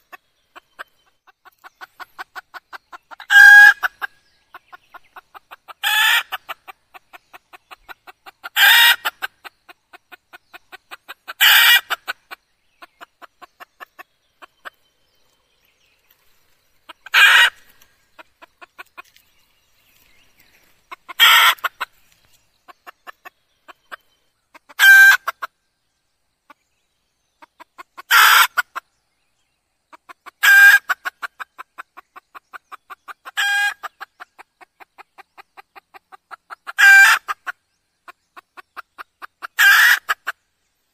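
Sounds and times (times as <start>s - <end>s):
hen cackling calls: 0.0s - 4.1s, 4.8s - 6.8s, 7.6s - 10.1s, 10.8s - 12.4s, 16.9s - 19.1s, 20.9s - 21.9s, 24.5s - 25.5s, 27.8s - 28.8s, 33.2s - 34.0s, 36.3s - 37.6s, 39.4s - 40.4s.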